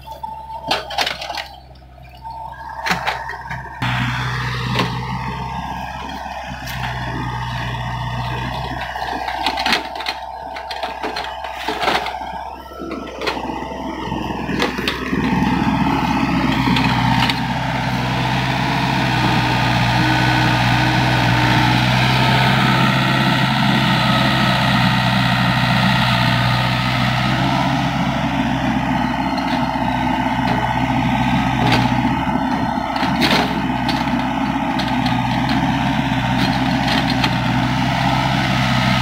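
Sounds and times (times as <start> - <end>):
excavator diesel engine under load: 0.0 - 39.0
excavator bucket clanks and knocks: 0.6 - 1.6.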